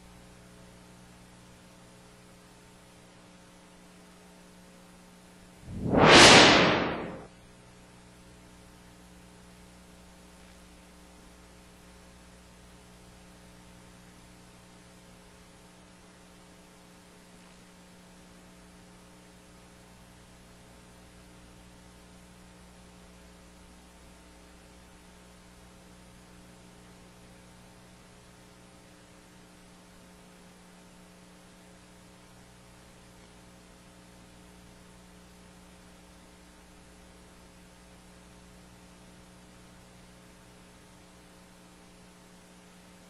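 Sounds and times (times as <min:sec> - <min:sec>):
faint hiss: 0:05.7 - 0:07.3
transition whoosh: 0:05.7 - 0:07.3.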